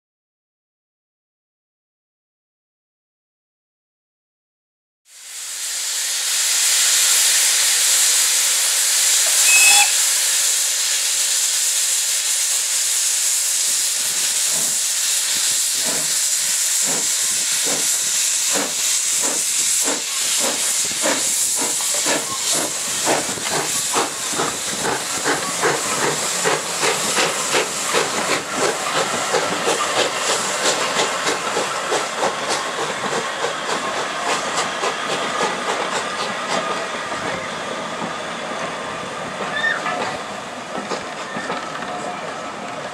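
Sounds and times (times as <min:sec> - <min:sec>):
steam hissing: 0:05.1 - 0:42.9
steam whistle: 0:09.1 - 0:10.9.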